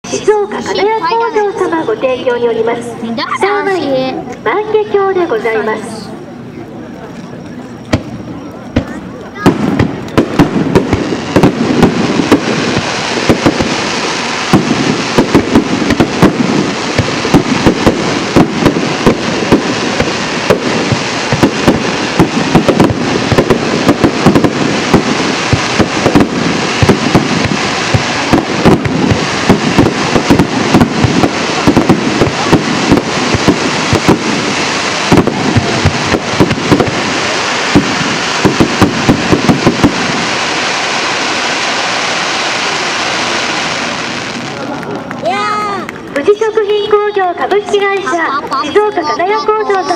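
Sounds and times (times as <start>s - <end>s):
firework shells bursting: 7.8s - 45.2s.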